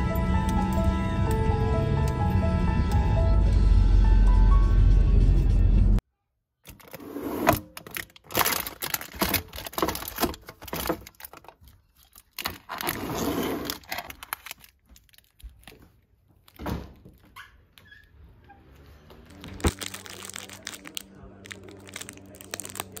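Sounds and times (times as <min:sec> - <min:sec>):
plastic bins clacking and sliding: 0:06.7 - 0:11.7, 0:12.4 - 0:14.8
snack packaging rustling: 0:07.7 - 0:16.6, 0:19.2 - 0:23.0.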